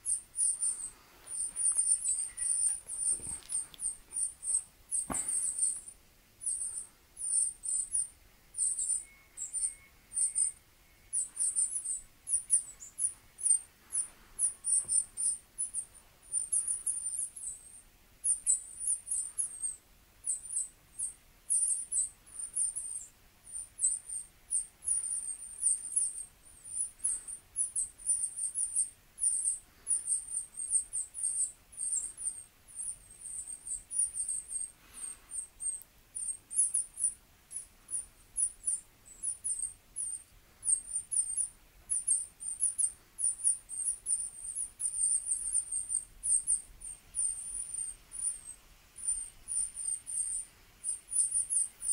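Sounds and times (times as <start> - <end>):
high-pitched animal chirps from speaker: 1.4 - 4.6.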